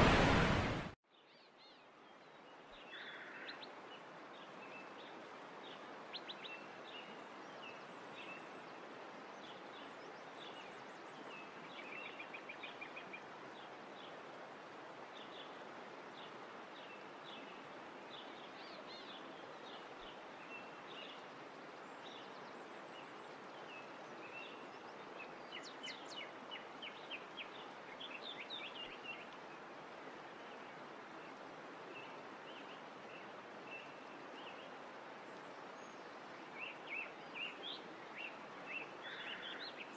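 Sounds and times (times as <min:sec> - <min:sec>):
steady hiss: 0:00.0 - 0:01.0.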